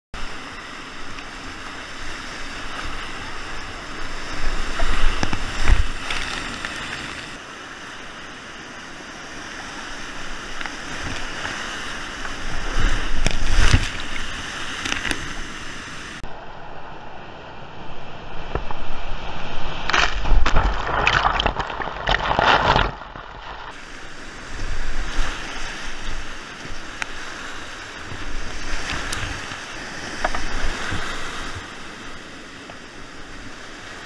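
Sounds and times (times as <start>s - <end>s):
whitewater rushing: 0.2s - 16.2s, 19.9s - 32.5s
water splashing: 0.3s - 7.4s, 10.1s - 16.2s, 19.5s - 32.2s.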